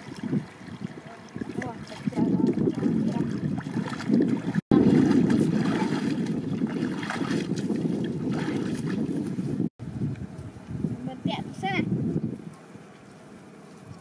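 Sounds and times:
water splashing and sloshing: 0.0 - 9.7
wind buffeting microphone: 0.0 - 12.6.

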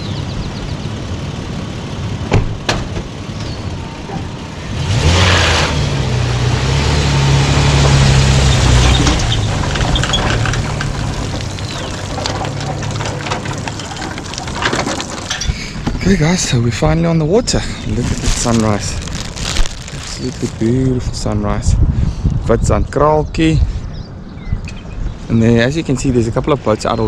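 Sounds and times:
truck engine pulling away: 0.0 - 20.8.

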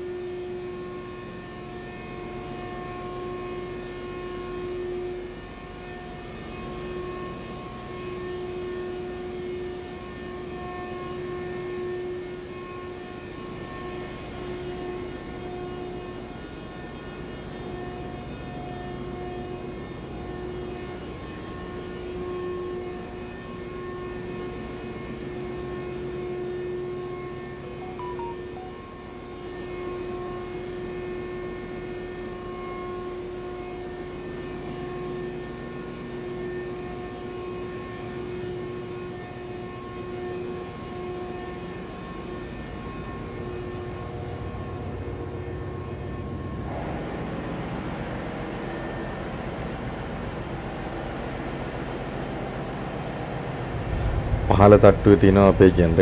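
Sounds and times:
engine room machinery drone: 0.0 - 56.0
machinery whining tones: 26.0 - 30.0, 53.0 - 56.0.

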